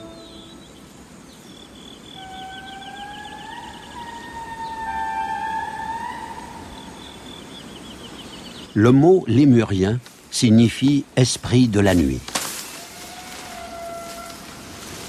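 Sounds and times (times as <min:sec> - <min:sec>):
wailing animal calls: 0:02.1 - 0:07.6, 0:12.8 - 0:14.7.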